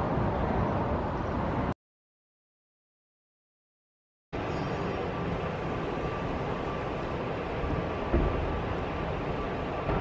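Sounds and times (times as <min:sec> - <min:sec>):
low rumbling background noise: 0:00.0 - 0:01.8, 0:04.4 - 0:10.0.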